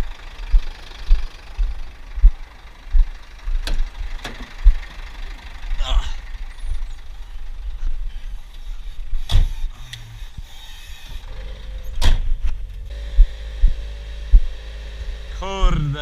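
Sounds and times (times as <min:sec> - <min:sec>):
truck engine rumbling: 0:00.0 - 0:16.0
steady hum: 0:12.6 - 0:16.0.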